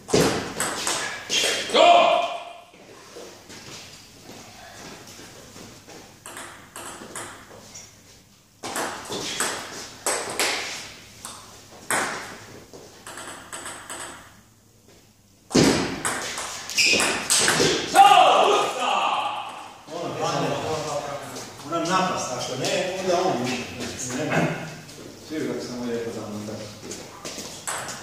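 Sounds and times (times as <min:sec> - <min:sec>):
table tennis ball hits: 0:00.1 - 0:02.4, 0:06.2 - 0:07.5, 0:08.6 - 0:12.4, 0:13.0 - 0:14.4, 0:15.5 - 0:17.9, 0:27.6 - 0:28.0.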